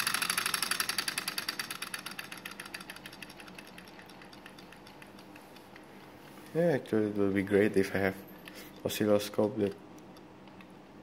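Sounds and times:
motor clicking in fast rhythm: 0.0 - 6.6.

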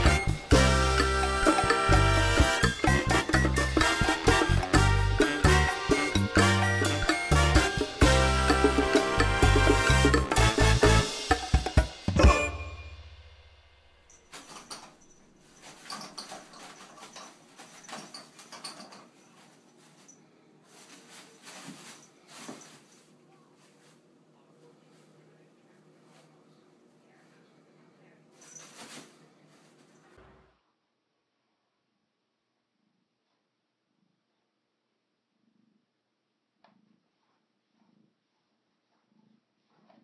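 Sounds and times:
upbeat music with bouncing bass: 0.0 - 12.9
toilet paper rustling: 14.3 - 24.1, 28.4 - 30.1.

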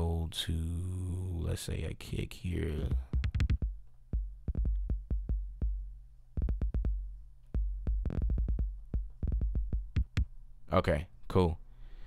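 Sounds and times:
kick drum hits: 3.0 - 10.3.

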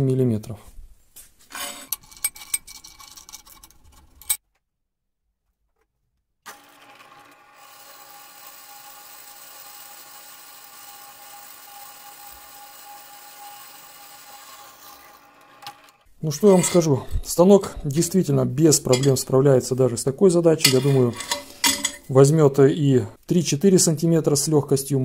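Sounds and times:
drill press drilling steel: 6.5 - 16.0.

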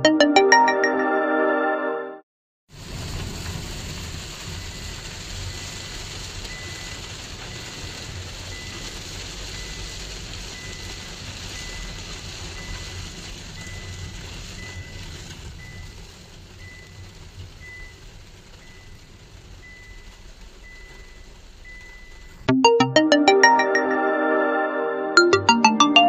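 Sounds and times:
heavy rain on windshield: 2.7 - 22.4.

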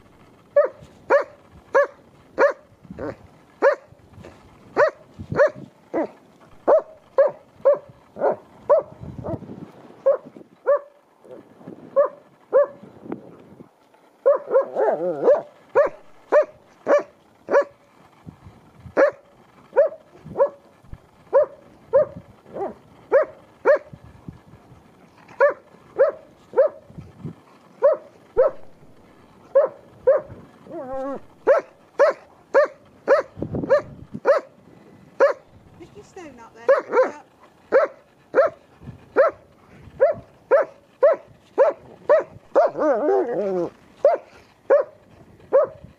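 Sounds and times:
dog barking: 0.6 - 3.9, 4.8 - 8.9, 10.0 - 10.9, 12.0 - 12.8, 14.2 - 17.8, 19.0 - 20.6, 21.3 - 23.9, 25.4 - 26.8, 27.8 - 28.6, 29.5 - 30.3, 30.9 - 34.5, 35.2 - 35.4, 36.7 - 38.6, 39.2 - 39.4, 40.0 - 43.2, 44.0 - 45.8.

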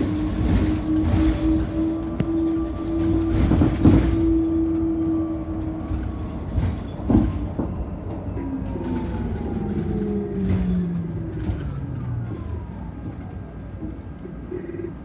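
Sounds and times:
bus body rattling knocks: 0.0 - 4.7, 5.9 - 7.8
road and tyre rumble: 0.0 - 15.0.

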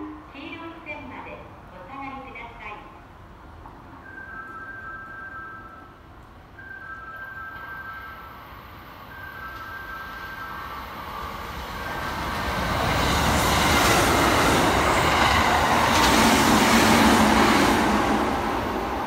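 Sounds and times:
train wheels rumbling on rails: 6.9 - 19.0.

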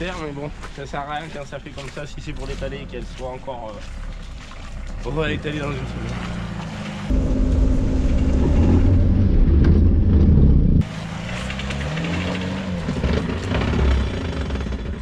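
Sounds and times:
engine revving under load: 5.0 - 15.0.

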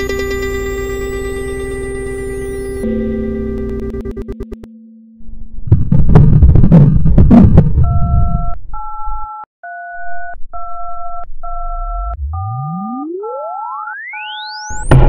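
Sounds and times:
tone gliding upward: 11.7 - 15.0.

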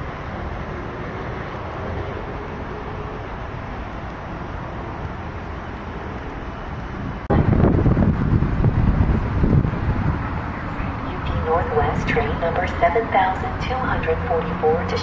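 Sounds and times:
distant traffic: 0.0 - 15.0
train rumbling away: 0.0 - 15.0.

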